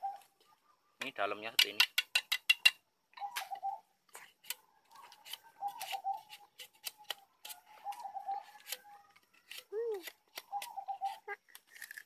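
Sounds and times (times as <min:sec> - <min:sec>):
knife cutting sugarcane: 0:04.2 - 0:12.0.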